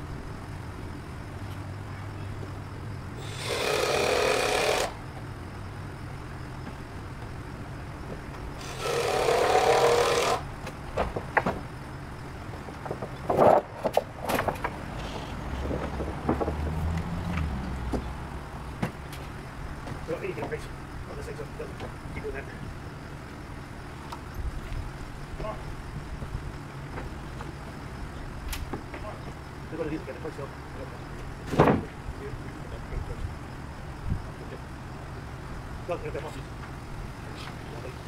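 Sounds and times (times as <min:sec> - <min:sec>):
power tool bursts: 0:03.2 - 0:05.0, 0:08.6 - 0:10.5
wooden knocks and clatters: 0:10.6 - 0:11.7, 0:12.5 - 0:18.1.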